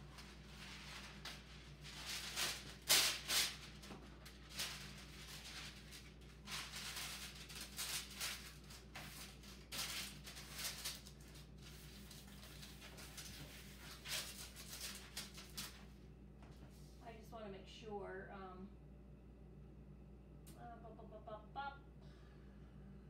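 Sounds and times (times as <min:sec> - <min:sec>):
parchment paper crinkling: 0:00.0 - 0:15.9.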